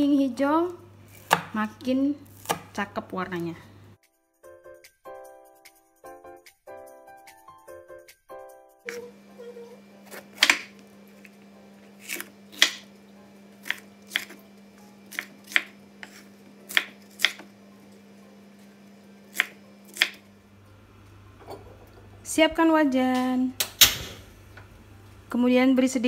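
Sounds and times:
knife chopping on wooden board: 1.1s - 1.6s, 2.4s - 2.8s, 10.1s - 10.8s, 12.0s - 12.9s, 13.6s - 14.4s, 15.1s - 17.5s, 19.3s - 20.2s.

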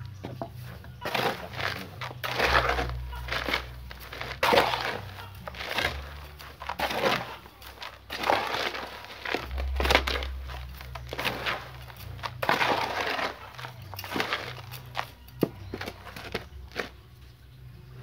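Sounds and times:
gritty soil crunching and scraping: 0.0s - 18.0s.

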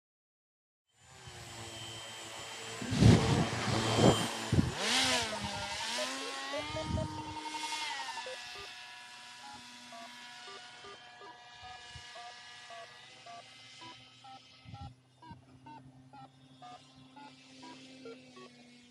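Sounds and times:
propeller motor whining: 1.0s - 18.9s
loud rushing bursts: 2.6s - 7.3s.

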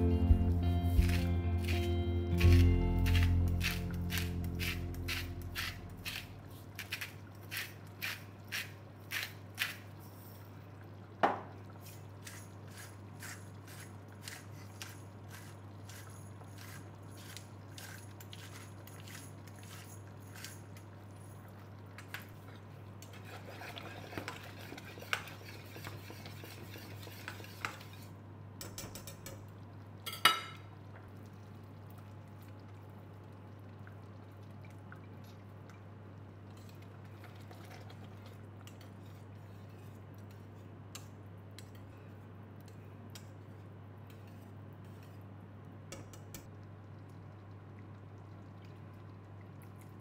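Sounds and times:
whisk scraping metal pot: 23.1s - 28.1s.

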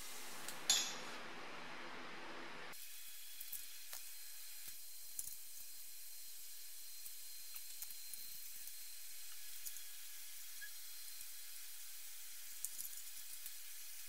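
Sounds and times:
steady hiss: 0.0s - 5.6s.

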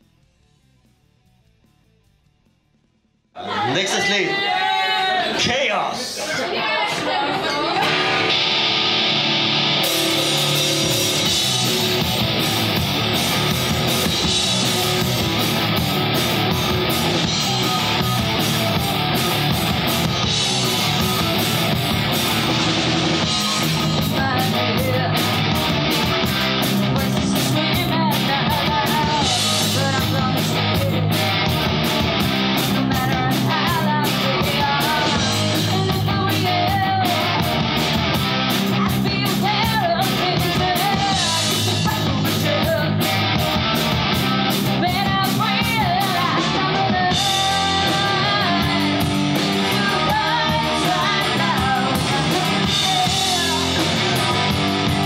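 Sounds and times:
live rock band playing: 7.1s - 55.0s
woman singing: 23.4s - 31.4s, 32.7s - 37.6s, 38.7s - 43.6s, 44.7s - 55.0s.

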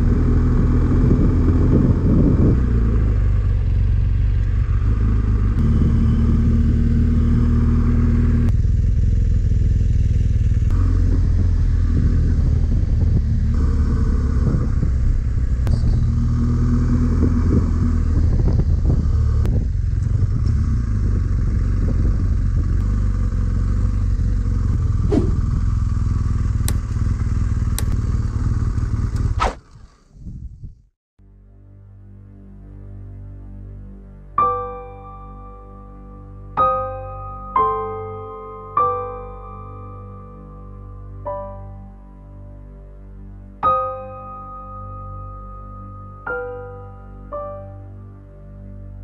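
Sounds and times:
motorcycle engine running: 0.0s - 30.4s
sharp clicks: 26.6s - 27.1s, 27.7s - 28.0s.

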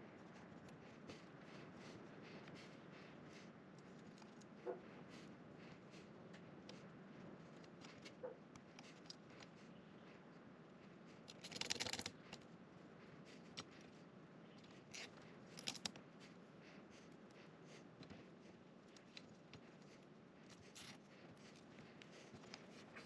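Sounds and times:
small plastic clicks and rustles: 11.2s - 12.5s, 14.6s - 16.0s.

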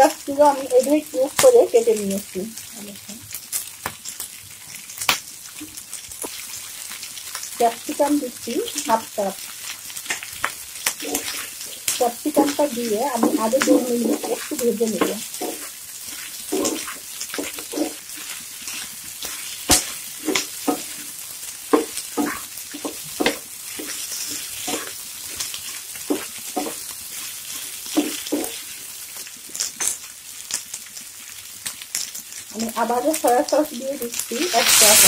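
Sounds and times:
food sizzling in a frying pan: 0.0s - 35.0s
wooden spatula scraping pan: 11.0s - 28.7s.

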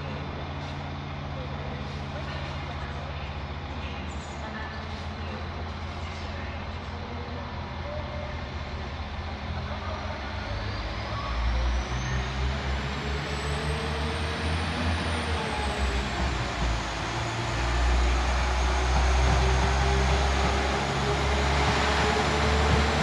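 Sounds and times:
diesel train engine rumbling: 0.0s - 23.0s
rising train whine: 0.0s - 23.0s.

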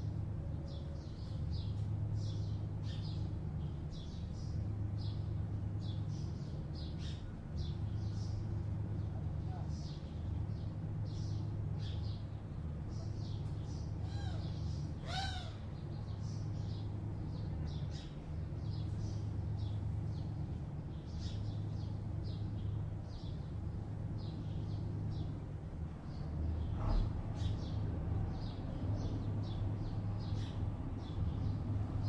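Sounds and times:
distant city traffic hum: 0.0s - 32.0s
small birds chirping: 0.0s - 32.0s
larger bird calling: 14.0s - 15.7s.

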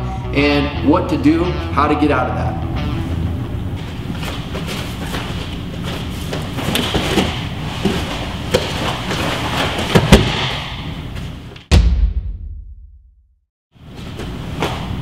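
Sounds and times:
bare feet scuffling on mat: 3.8s - 10.5s
bodies thudding on mat: 6.3s - 10.8s.

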